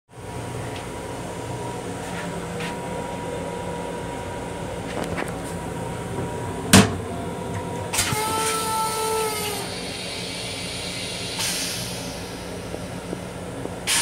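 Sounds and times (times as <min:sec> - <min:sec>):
train hum: 0:00.1 - 0:14.0
train horn: 0:08.0 - 0:09.8.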